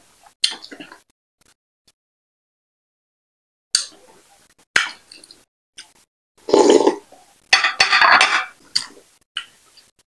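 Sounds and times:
person slurping soup: 0:06.4 - 0:07.2
throaty mouth sound: 0:06.4 - 0:07.2.

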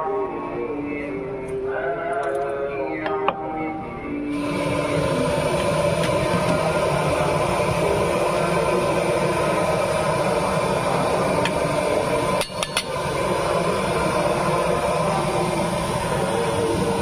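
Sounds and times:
oil sizzling in a wok: 0:04.4 - 0:17.0.

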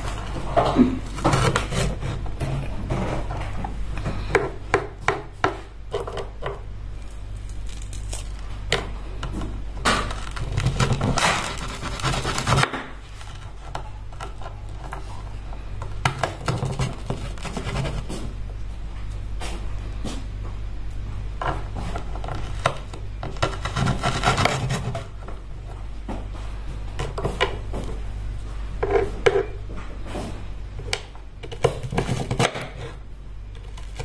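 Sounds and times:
knife scraping cutting board: 0:00.0 - 0:03.6, 0:10.1 - 0:15.2, 0:16.2 - 0:18.4, 0:21.8 - 0:25.2.

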